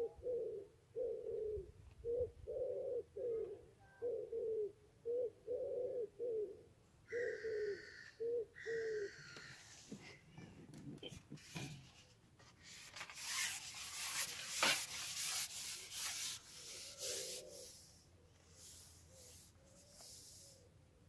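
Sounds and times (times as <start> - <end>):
fishing pole handling rustle: 11.4 - 17.5.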